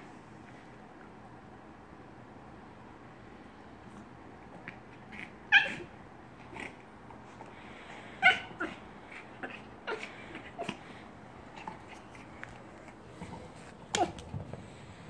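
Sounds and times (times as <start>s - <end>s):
dog crying high-pitched: 5.2s - 5.9s, 8.2s - 10.7s.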